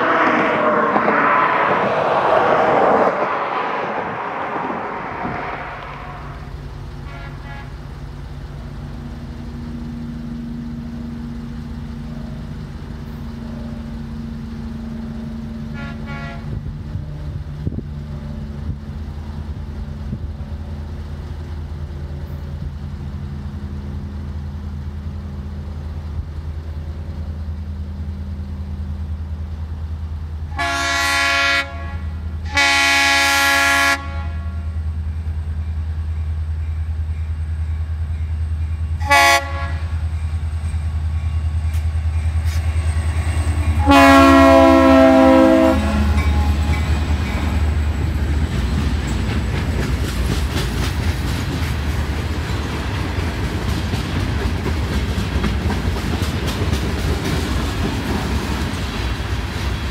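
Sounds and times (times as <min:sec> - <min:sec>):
diesel locomotive engine rumble: 0:00.0 - 0:59.9
train horn blasts: 0:05.3 - 0:07.9, 0:15.6 - 0:17.0, 0:30.5 - 0:34.8, 0:39.0 - 0:40.0, 0:43.5 - 0:47.0.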